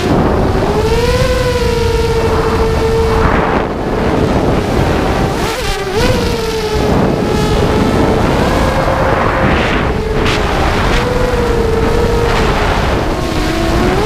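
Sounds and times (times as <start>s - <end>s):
drone motors whining: 0.0s - 14.0s
wind rushing over microphone: 0.0s - 14.0s.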